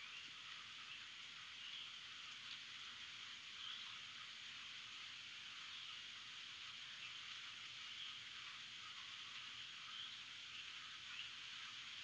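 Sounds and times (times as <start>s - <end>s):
light rain: 0.0s - 12.0s
faint bird chirps: 9.8s - 11.5s.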